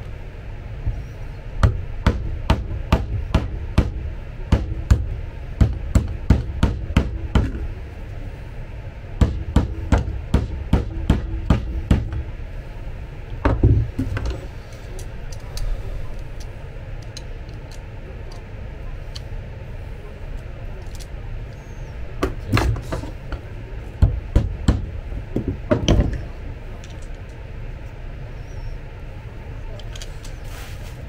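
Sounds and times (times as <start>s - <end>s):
hammer tapping on metal: 9.2s - 12.3s
heavier knock: 9.2s - 12.3s, 13.4s - 14.0s.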